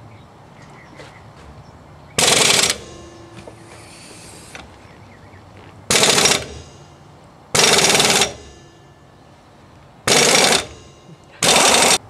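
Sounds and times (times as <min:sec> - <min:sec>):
impact wrench rattling: 0:02.2 - 0:05.0, 0:05.6 - 0:12.0.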